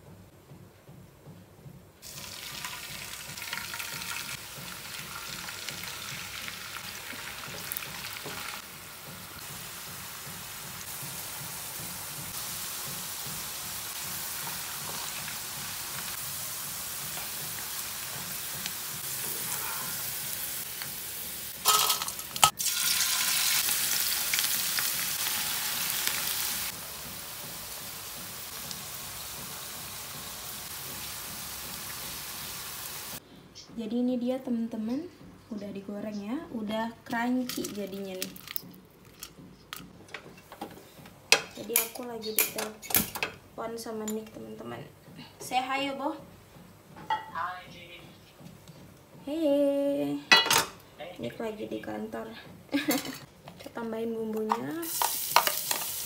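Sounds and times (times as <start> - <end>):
potato sticks sizzling in oil: 2.0 - 33.2, 54.8 - 56.0.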